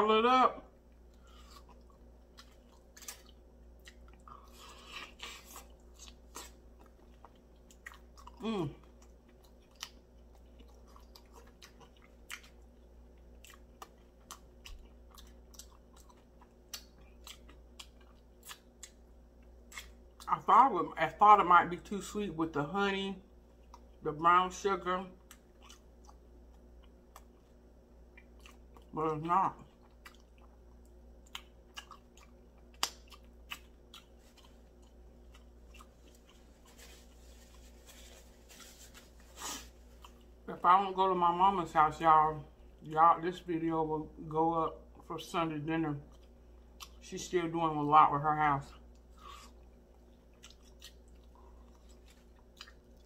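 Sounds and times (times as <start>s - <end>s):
chewing with lip smacks: 0.8s - 20.3s, 25.2s - 28.9s, 29.6s - 38.2s, 46.0s - 47.0s, 48.7s - 53.0s.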